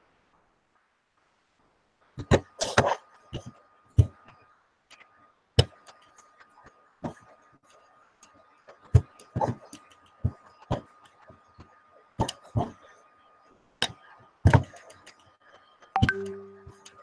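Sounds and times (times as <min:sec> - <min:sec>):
faint steady high tone: 0:16.0 - 0:17.0.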